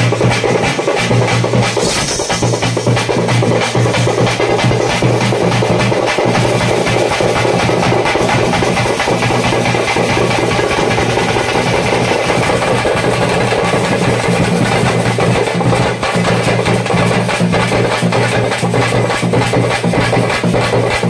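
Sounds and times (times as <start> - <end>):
festival music: 0.0 - 14.6
fast drumming: 0.0 - 21.0.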